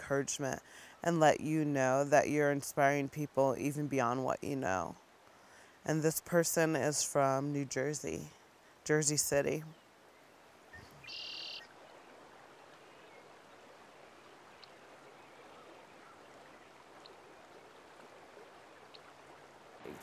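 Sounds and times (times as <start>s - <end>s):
river running over rocks: 10.4s - 20.0s.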